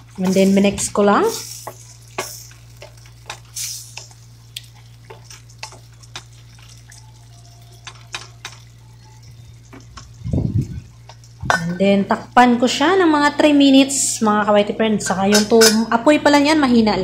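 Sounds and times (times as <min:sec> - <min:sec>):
sauce simmering: 0:00.0 - 0:14.0
steady low hum: 0:00.0 - 0:17.0
wooden spatula scraping a pan: 0:00.2 - 0:04.1.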